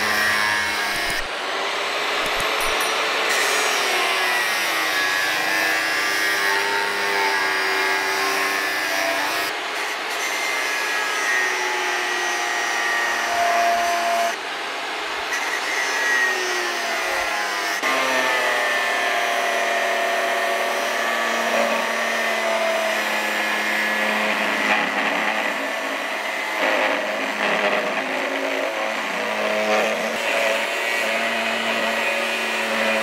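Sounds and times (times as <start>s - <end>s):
angle grinder cutting steel: 0.0s - 14.4s, 15.3s - 33.0s.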